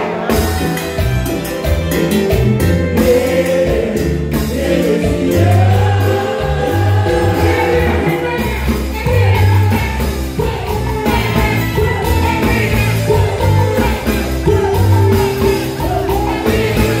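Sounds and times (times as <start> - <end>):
live band music: 0.0 - 17.0
man singing into a microphone: 2.7 - 14.7.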